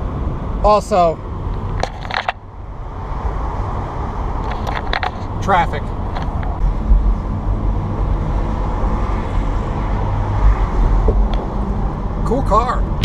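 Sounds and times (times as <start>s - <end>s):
wind road and engine noise: 0.0s - 13.0s.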